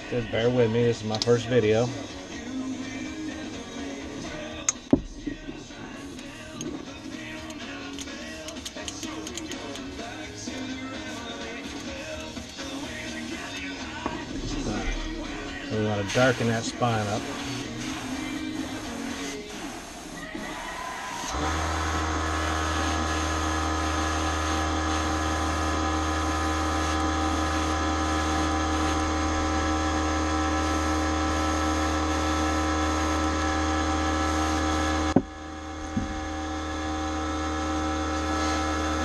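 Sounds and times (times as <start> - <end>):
airbrush compressor humming: 0.0 - 39.0
sharp click: 7.4 - 9.9.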